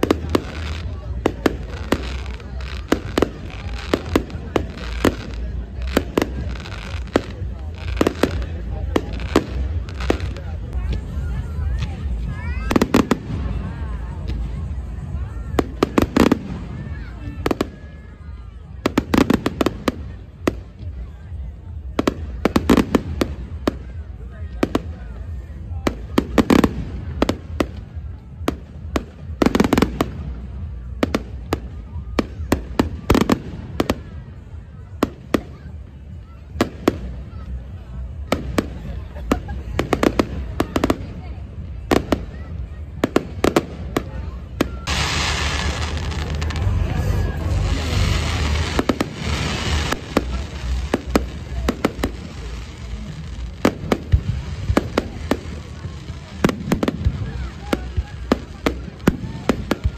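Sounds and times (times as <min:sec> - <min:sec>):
fireworks bursting: 0:00.0 - 0:59.9
low rumble: 0:44.8 - 0:51.9.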